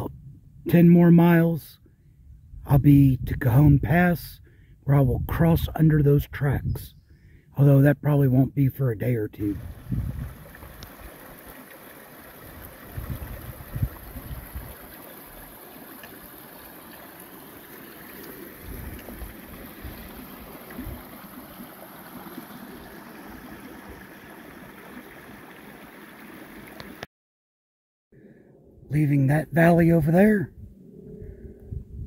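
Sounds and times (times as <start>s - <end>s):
creek running over rocks: 9.4s - 27.1s.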